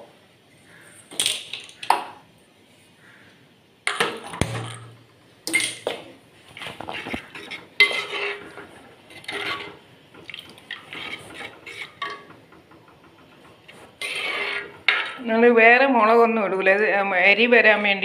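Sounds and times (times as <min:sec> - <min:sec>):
ladle scraping a clay pot: 0:06.6 - 0:09.9, 0:10.5 - 0:12.3, 0:13.6 - 0:15.2.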